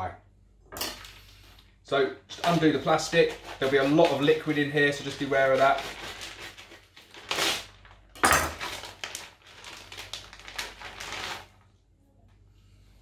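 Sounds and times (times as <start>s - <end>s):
knife slitting plastic bag: 2.3s - 11.6s
plastic crinkling and rustling: 2.4s - 11.8s.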